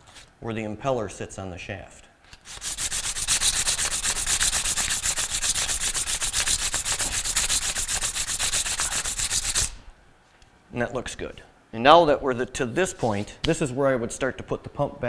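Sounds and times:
emery cloth rasping on shaft: 0:02.4 - 0:09.8.

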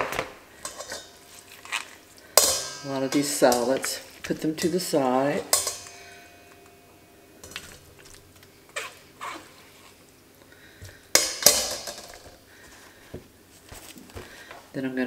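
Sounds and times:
utensils clattering: 0:00.0 - 0:10.0, 0:10.8 - 0:12.4.

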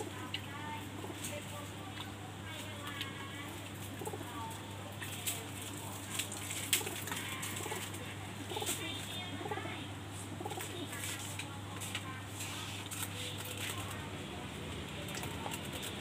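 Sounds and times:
steady low hum: 0:00.0 - 0:16.0
pigeons cooing: 0:03.1 - 0:11.0.

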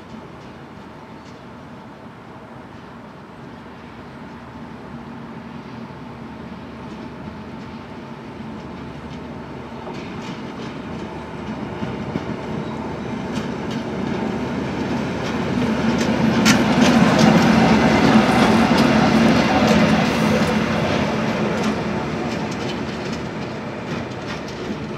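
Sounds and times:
diesel locomotive passing: 0:00.0 - 0:24.9
wheels clicking on track: 0:06.8 - 0:24.9.

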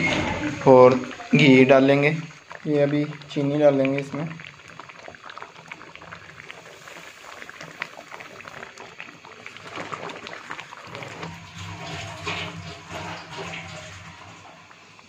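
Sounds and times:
thick milk bubbling and popping: 0:00.0 - 0:15.0.

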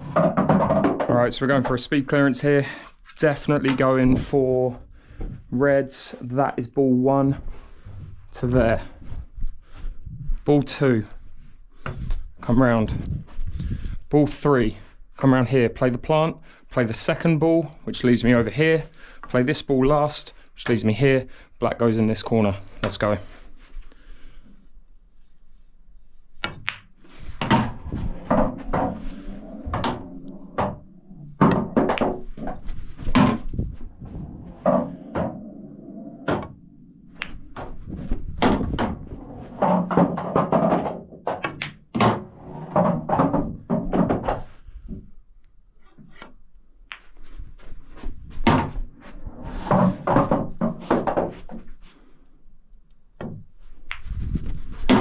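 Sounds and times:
pool balls clicking: 0:00.0 - 0:01.8, 0:26.4 - 0:44.5
cue striking ball: 0:26.4 - 0:32.6, 0:34.4 - 0:37.8.

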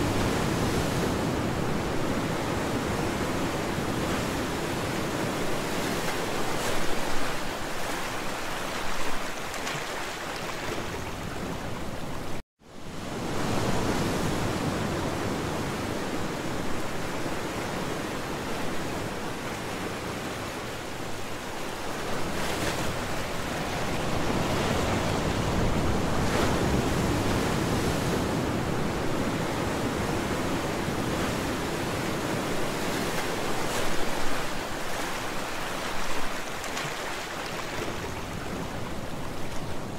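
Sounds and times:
sea waves washing: 0:13.0 - 0:39.9.

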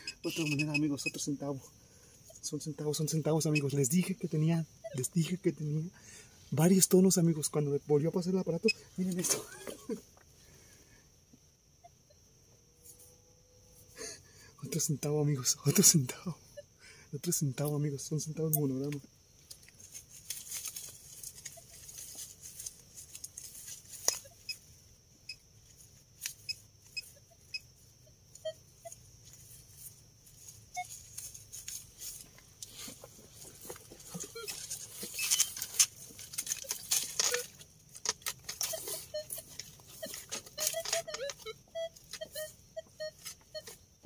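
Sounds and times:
digging soil and stones by hand: 0:18.4 - 0:24.3, 0:30.8 - 0:42.3.

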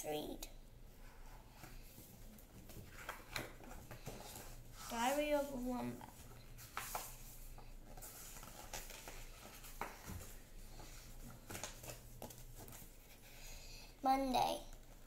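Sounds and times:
room hum: 0:00.0 - 0:15.0
book rustling and tapping: 0:01.6 - 0:13.2.

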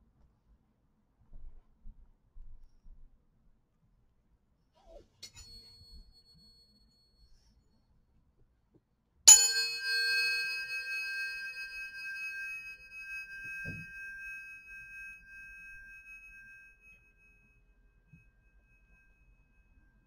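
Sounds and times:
tuning fork clang: 0:05.2 - 0:06.8, 0:09.3 - 0:20.0
tuning forks ringing: 0:05.2 - 0:07.0, 0:09.3 - 0:20.0.

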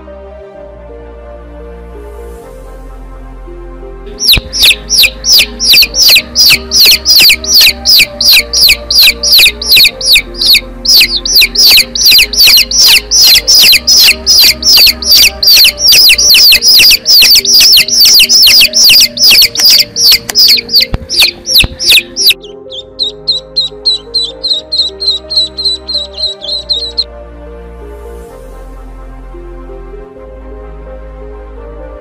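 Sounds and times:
soft background music: 0:00.0 - 0:32.0
chicks peeping: 0:04.2 - 0:27.1.

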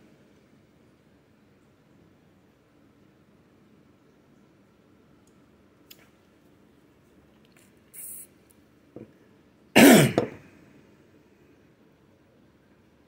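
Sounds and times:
brief hiss: 0:07.9 - 0:08.4
man coughing: 0:09.8 - 0:10.4.

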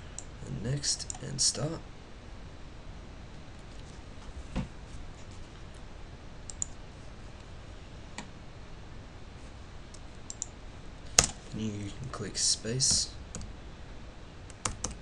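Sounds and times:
low room hiss: 0:00.0 - 0:15.0
computer mouse clicks: 0:06.5 - 0:06.8.

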